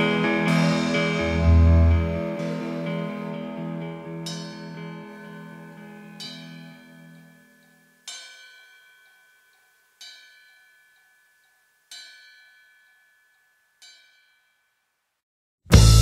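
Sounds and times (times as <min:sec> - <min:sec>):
low held note: 0:00.0 - 0:05.1
bell-like chime: 0:00.0 - 0:15.0.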